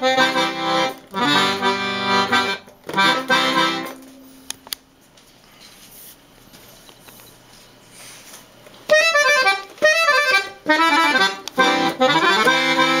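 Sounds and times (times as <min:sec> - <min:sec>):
piano accordion playing: 0:00.0 - 0:04.4, 0:08.9 - 0:13.0.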